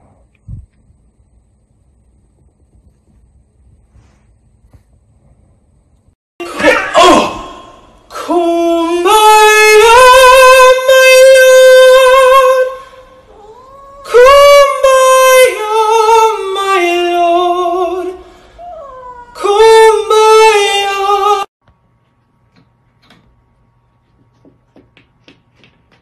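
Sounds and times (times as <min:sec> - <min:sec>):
man singing unaccompanied: 0:08.1 - 0:12.9, 0:14.1 - 0:18.2.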